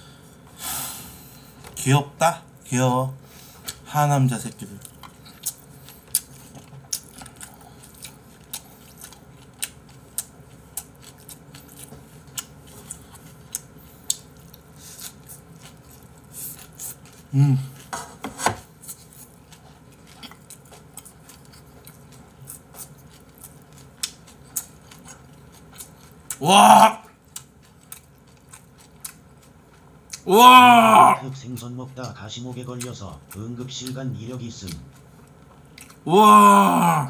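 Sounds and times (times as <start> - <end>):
low vocal sound: 26.4 - 27.0, 36.1 - 37.0
chewing and chopstick clicks: 32.0 - 34.0.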